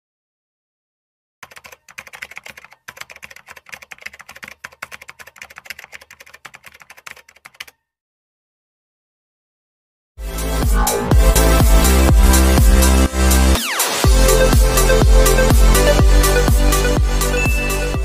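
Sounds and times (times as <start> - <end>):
keyboard keystroke clicks: 1.4 - 7.8.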